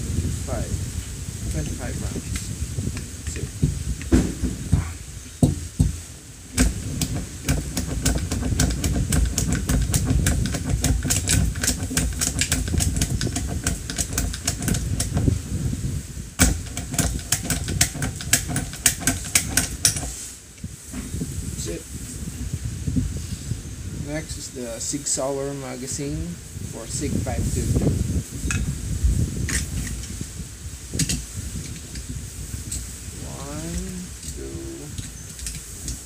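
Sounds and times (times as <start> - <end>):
low rumble of handling: 0.0 - 23.1
loud knock: 3.6 - 6.0, 6.6 - 15.3, 16.4 - 20.2
metallic clicks of cartridges: 6.6 - 15.3, 16.4 - 20.3, 35.0 - 36.0.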